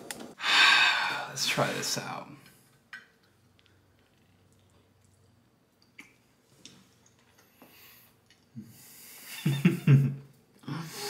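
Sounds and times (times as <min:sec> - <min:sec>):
man chewing food: 0:02.5 - 0:08.8.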